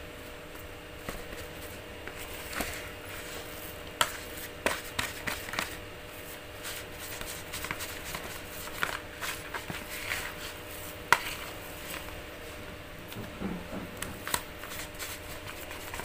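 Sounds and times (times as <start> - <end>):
plastic spoon scraping plastic bowl: 1.6 - 12.2, 14.1 - 16.0.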